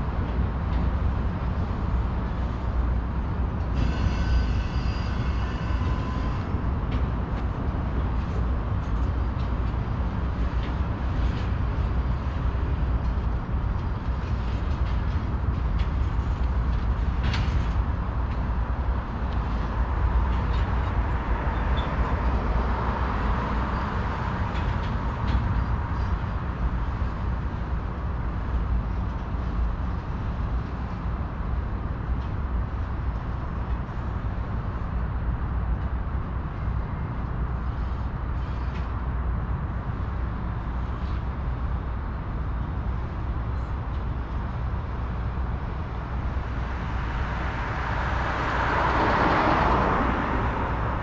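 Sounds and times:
car passing on road: 0:46.6 - 0:51.0.

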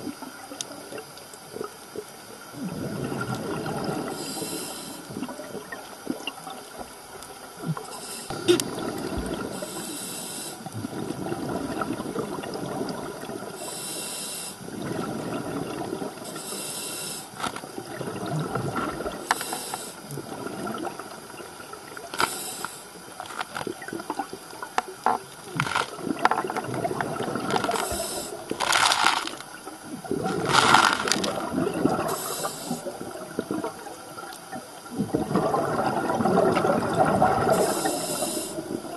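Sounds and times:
exhaled bubbles gurgling: 0:00.0 - 0:38.9
regulator inhale hiss: 0:04.1 - 0:05.2, 0:07.9 - 0:08.6, 0:09.5 - 0:10.7, 0:13.6 - 0:14.6, 0:16.3 - 0:17.6, 0:19.2 - 0:20.1, 0:22.2 - 0:23.0, 0:27.7 - 0:28.5, 0:32.0 - 0:33.0, 0:37.5 - 0:38.8.

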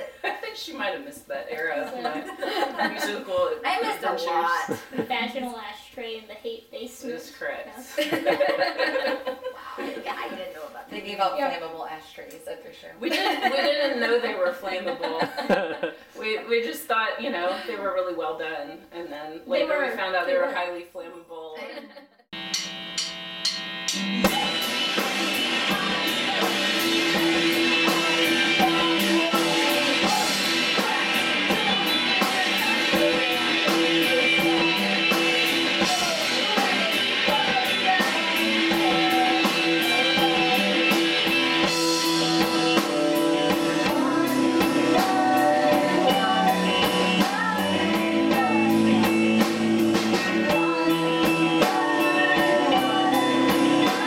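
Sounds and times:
rock band playing live: 0:22.4 - 0:54.0
woman singing: 0:24.2 - 0:41.0, 0:41.6 - 0:49.6, 0:50.4 - 0:54.0.

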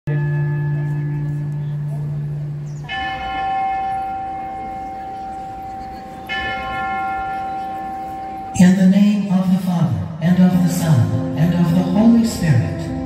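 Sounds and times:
bell ringing: 0:02.8 - 0:13.0.

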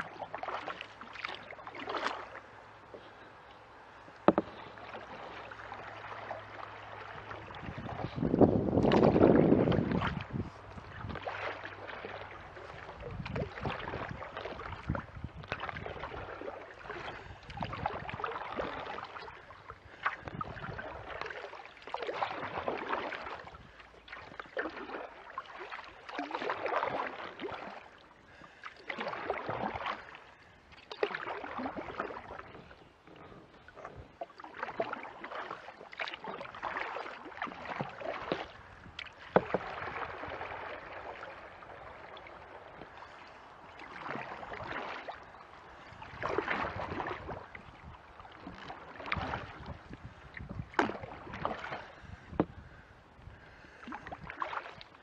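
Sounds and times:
kayak paddle splashing water: 0:00.0 - 0:55.0.

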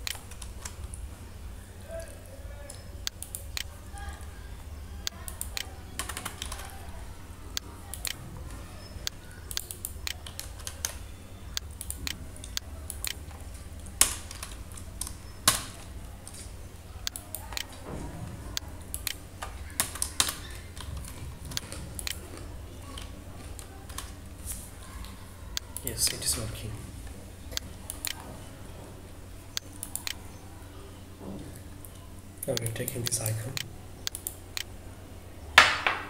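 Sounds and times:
keyboard typing clicks: 0:00.0 - 0:01.0, 0:02.6 - 0:03.8, 0:05.0 - 0:08.2, 0:08.8 - 0:17.8, 0:18.5 - 0:24.2, 0:27.5 - 0:28.2, 0:29.5 - 0:30.3, 0:31.8 - 0:34.7
low steady hum: 0:00.0 - 0:36.0.

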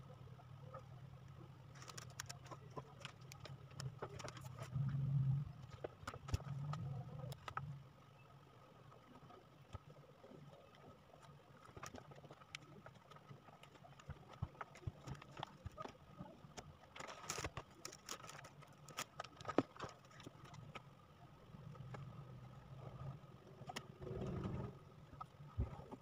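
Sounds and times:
contact paper crinkling: 0:01.7 - 0:04.8, 0:10.8 - 0:20.9.

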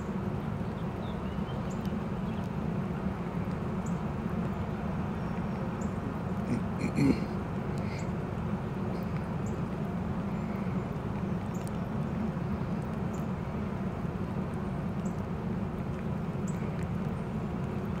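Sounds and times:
low outdoor rumble: 0:00.0 - 0:18.0
faint light ticks: 0:01.6 - 0:02.6, 0:03.4 - 0:04.6, 0:08.9 - 0:09.9, 0:10.5 - 0:13.3, 0:14.4 - 0:18.0.

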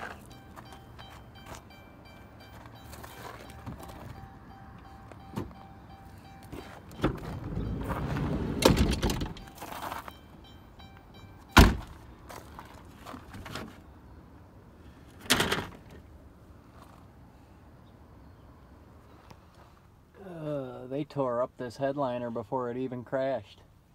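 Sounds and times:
sharp thunk: 0:11.6 - 0:11.9.

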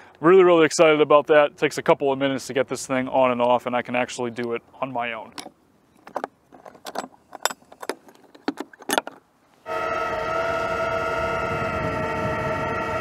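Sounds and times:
metal clicks and rattles: 0:05.3 - 0:09.3
electric jack motor whine: 0:09.7 - 0:13.0.

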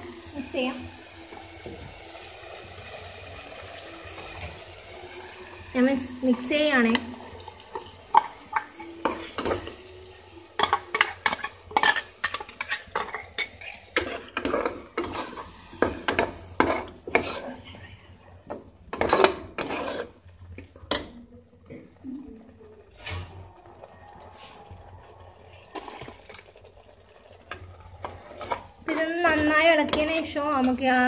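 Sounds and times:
metal spoon scraping a pot: 0:10.6 - 0:17.6, 0:18.9 - 0:20.2.

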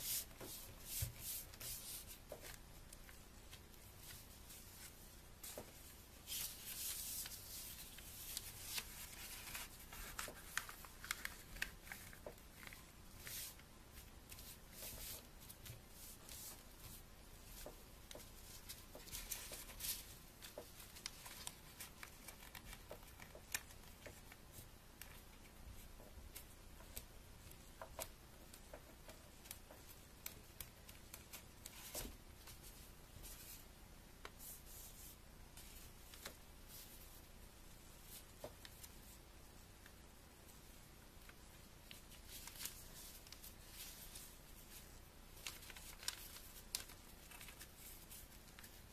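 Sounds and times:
paper rustling and crinkling: 0:00.1 - 0:25.5, 0:41.2 - 0:48.9
sharp clicks of paper folds: 0:05.4 - 0:13.5, 0:17.6 - 0:25.3, 0:45.4 - 0:48.9.

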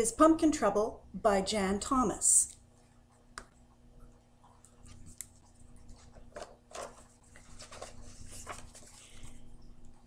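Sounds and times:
book pages flipping: 0:04.6 - 0:09.6.

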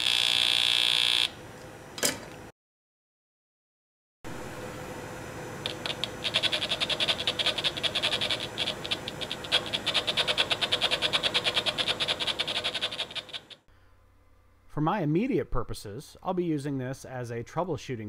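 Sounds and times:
steady hum: 0:04.3 - 0:17.2
buzzy clicks from speaker: 0:05.6 - 0:13.6.

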